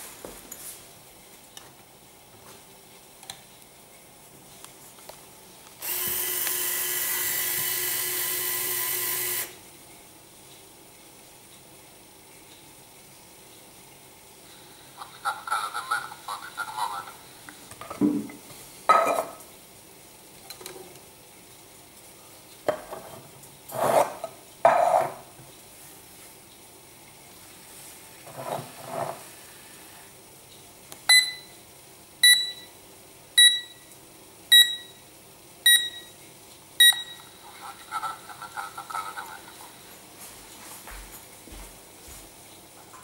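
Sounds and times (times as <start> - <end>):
short electronic beeps: 31.1 - 31.5, 32.2 - 32.7, 33.4 - 33.8, 34.5 - 34.9, 35.7 - 36.2, 36.8 - 37.2.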